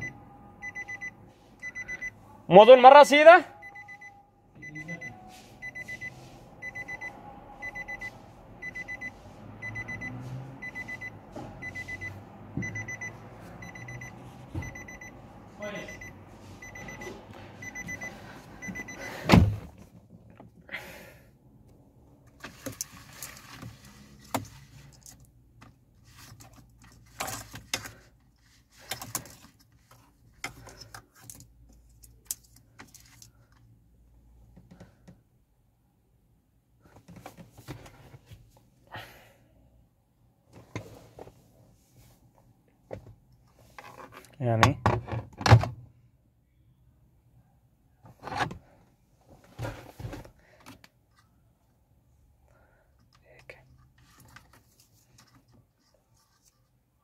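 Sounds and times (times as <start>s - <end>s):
car warning chime beeping: 0.0s - 19.3s.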